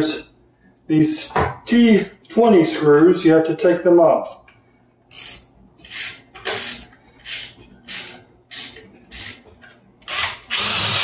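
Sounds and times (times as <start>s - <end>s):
impact driver bursts: 10.1s - 11.0s.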